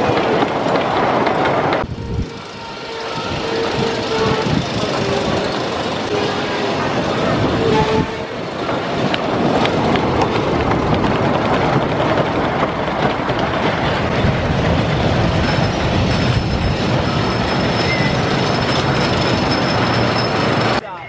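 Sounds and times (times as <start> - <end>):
roller coaster train rumbling: 0.0 - 21.0.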